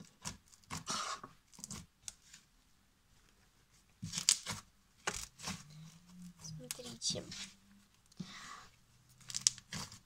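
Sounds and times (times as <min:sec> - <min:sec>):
slime squelching and crackling: 0:04.0 - 0:10.0.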